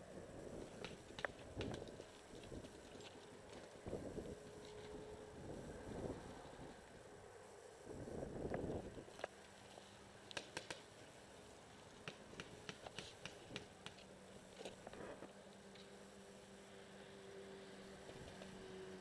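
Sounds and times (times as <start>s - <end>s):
faint steady hum: 0.0s - 19.0s
distant paintball markers firing: 10.3s - 10.9s, 12.0s - 14.1s.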